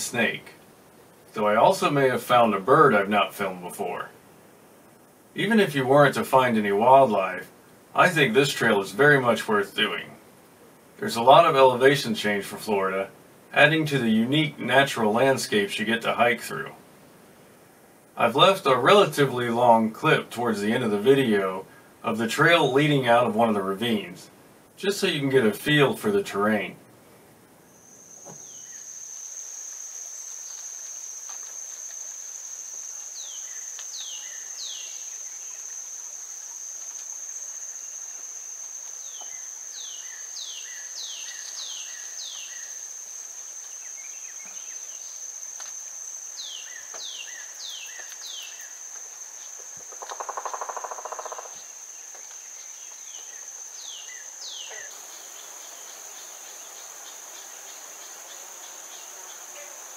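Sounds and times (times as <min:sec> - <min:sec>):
insects trilling: 0:00.0 - 0:26.7, 0:27.5 - 0:59.9.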